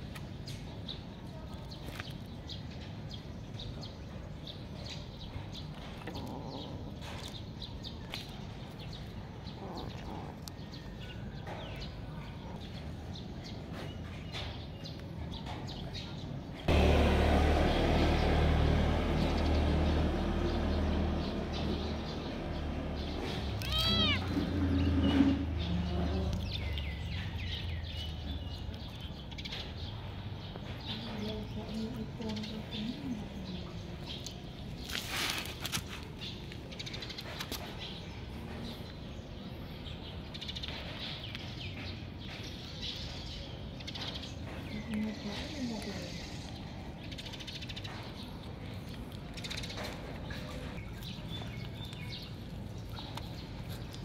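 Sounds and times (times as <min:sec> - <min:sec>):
kitten meowing: 0:23.6 - 0:24.4.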